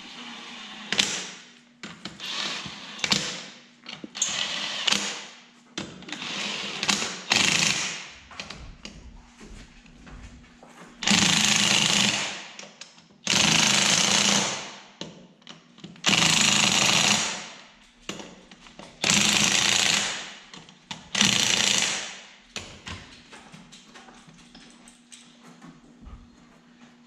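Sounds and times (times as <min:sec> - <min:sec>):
impact wrench hammering lug nuts: 0:04.2 - 0:08.6, 0:11.0 - 0:18.4, 0:19.0 - 0:23.1.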